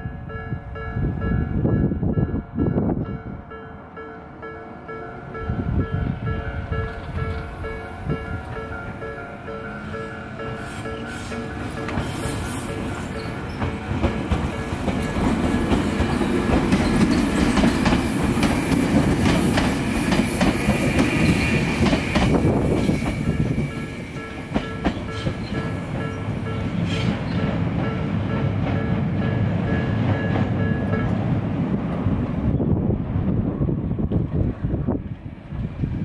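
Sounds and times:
train wheels clattering on rails: 0:06.7 - 0:32.1.

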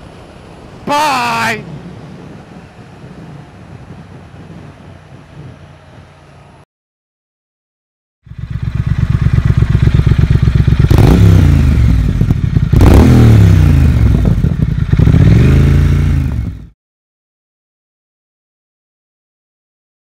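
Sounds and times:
motorcycle engine revving: 0:08.2 - 0:16.8.

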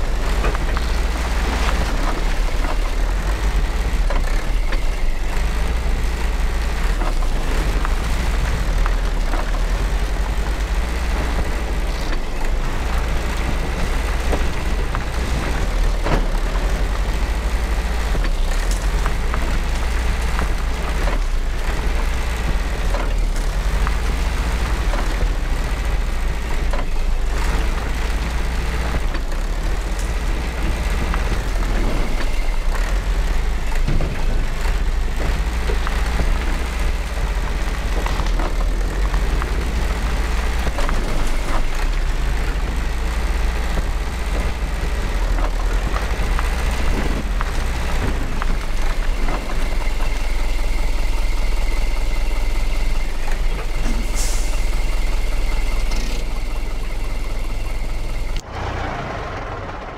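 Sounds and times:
diesel engine rumbling: 0:00.0 - 0:59.9.

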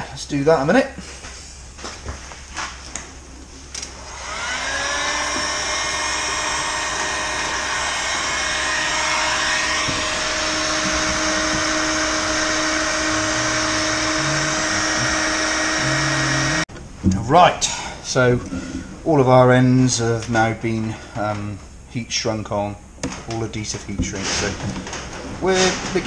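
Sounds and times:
heat gun fan blowing: 0:03.7 - 0:16.6.

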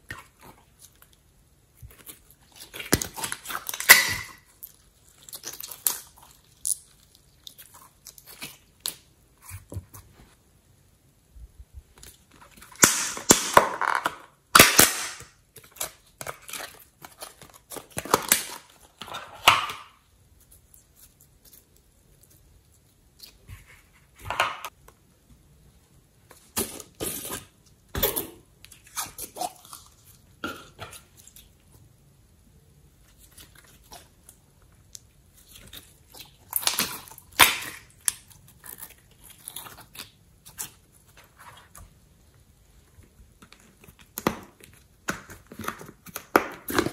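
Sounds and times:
slime squishing: 0:00.0 - 0:10.3, 0:32.9 - 0:42.4.

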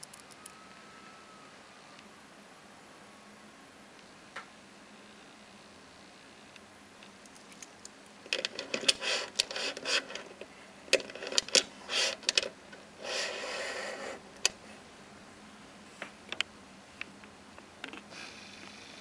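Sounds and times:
watch scraping on surface: 0:08.7 - 0:10.3, 0:11.2 - 0:12.3, 0:13.0 - 0:14.2.

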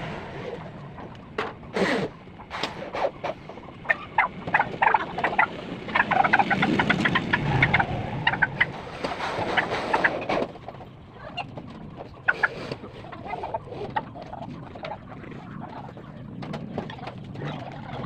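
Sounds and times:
rushing noise: 0:00.0 - 0:02.8, 0:05.6 - 0:10.5
chickens clucking: 0:00.0 - 0:18.0.

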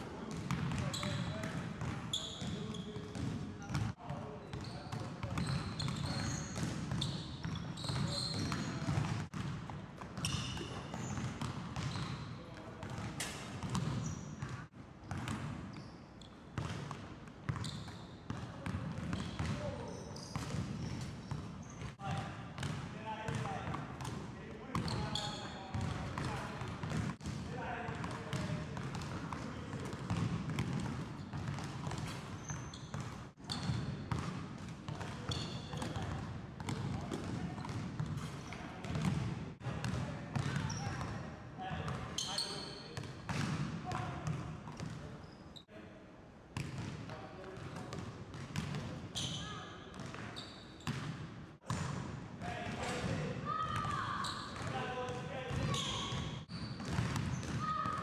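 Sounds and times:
sneakers squeaking: 0:00.2 - 0:27.3, 0:28.0 - 0:45.7, 0:47.5 - 0:52.0, 0:52.8 - 0:58.0
basketball bouncing on hardwood floor: 0:28.3 - 0:32.1, 0:32.9 - 0:35.1.

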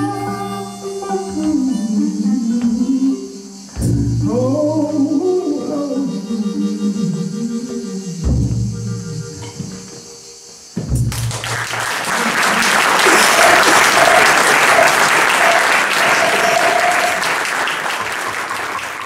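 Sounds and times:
audience applause: 0:11.1 - 0:19.0
high whistle-like notes: 0:13.1 - 0:17.4.

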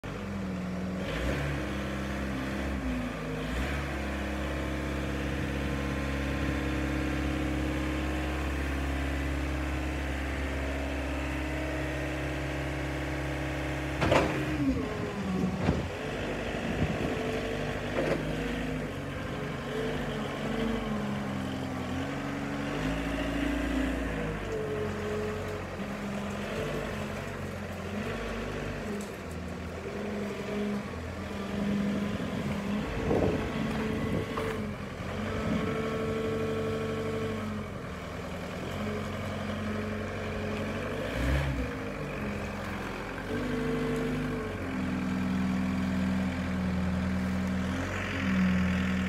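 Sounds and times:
forklift diesel engine running: 0:00.0 - 0:49.0
sharp clunk: 0:14.0 - 0:14.5.

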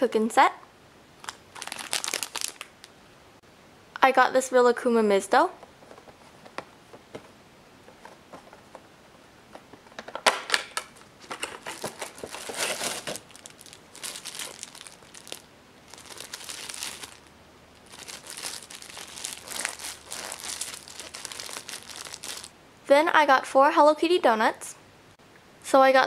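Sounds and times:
plastic packaging crinkling: 0:01.2 - 0:02.9, 0:10.6 - 0:22.5.

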